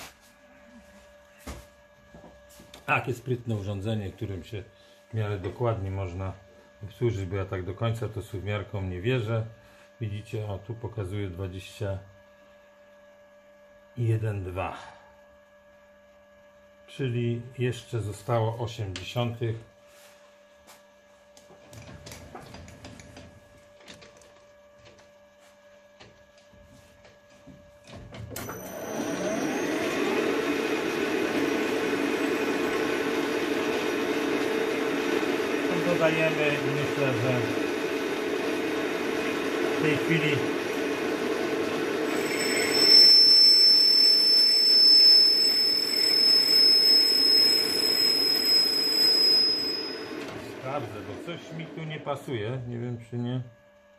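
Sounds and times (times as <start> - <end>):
lathe running hum: 0.0 - 53.9
lathe spindle running: 28.4 - 52.6.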